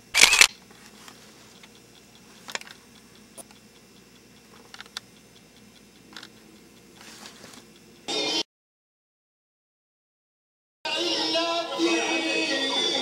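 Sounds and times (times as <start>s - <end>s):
low background hum: 0.0s - 8.2s
camcorder handling clicks: 6.1s - 6.4s.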